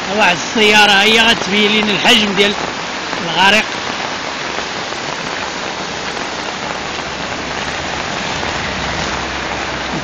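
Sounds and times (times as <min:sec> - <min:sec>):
car wading through floodwater: 0:00.0 - 0:10.0
water hissing on flooded road: 0:00.0 - 0:10.0
low rumble: 0:06.8 - 0:10.0.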